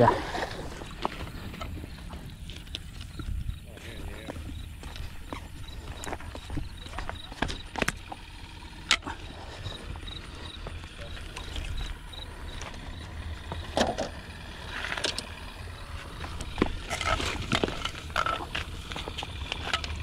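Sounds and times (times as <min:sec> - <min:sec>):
wind rumbling on microphone: 0:00.0 - 0:07.8
fishing gear knocks and rustles: 0:16.2 - 0:20.0.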